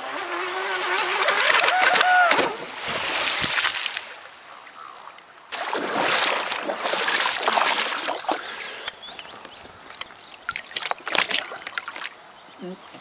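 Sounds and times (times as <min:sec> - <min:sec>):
water rushing and splashing: 0:01.9 - 0:04.6, 0:05.3 - 0:12.4
water sloshing: 0:05.5 - 0:12.4.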